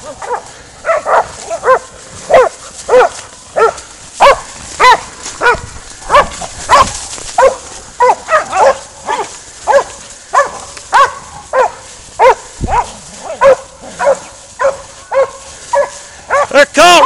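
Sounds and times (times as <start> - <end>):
dogs barking: 0.0 - 16.6.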